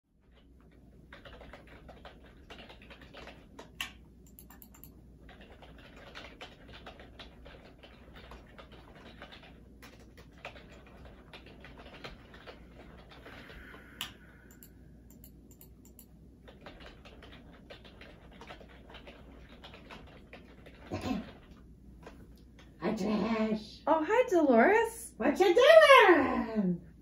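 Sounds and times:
laptop keyboard typing: 0.1 - 22.2.

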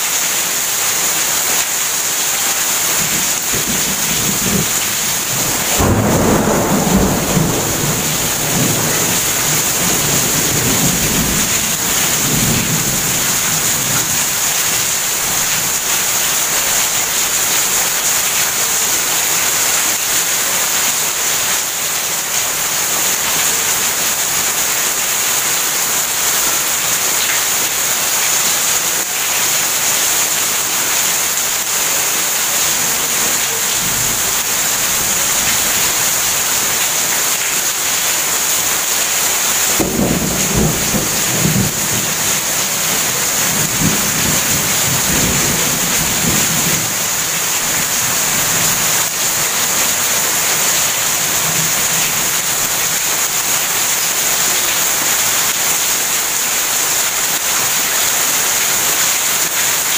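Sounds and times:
heavy rain pouring: 0.0 - 59.9
thunder rumbling: 3.0 - 14.5, 39.7 - 48.6.

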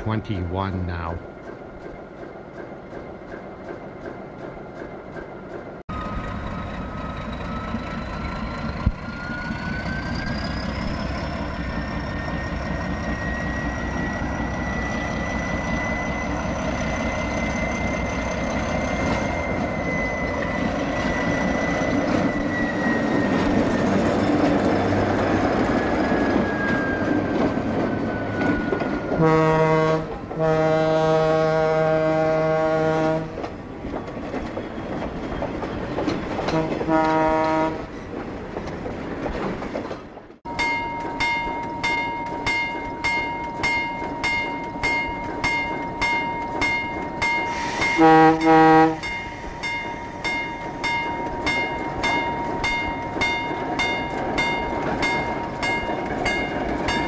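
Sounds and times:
diesel locomotive whining: 0.0 - 57.0
locomotive horn blasts: 29.1 - 33.4, 36.5 - 37.9, 47.5 - 49.2.

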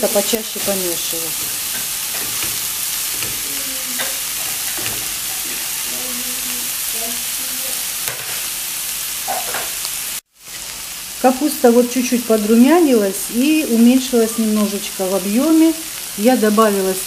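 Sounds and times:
spatula stirring and scraping: 0.0 - 6.0
cabbage sizzling in a pan: 0.0 - 17.0.

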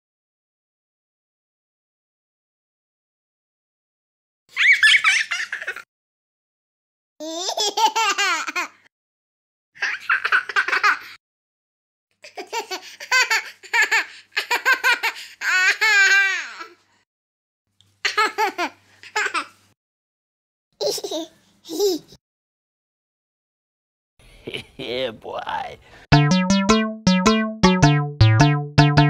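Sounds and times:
high-pitched laughter: 4.6 - 5.8.

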